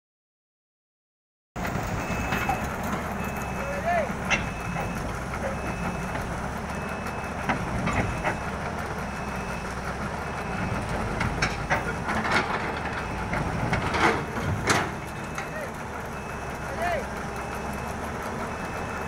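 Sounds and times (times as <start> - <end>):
steel tracks knocking and clanking: 1.6 - 6.4, 7.3 - 8.8, 10.8 - 15.9
excavator diesel engine running: 1.6 - 19.0.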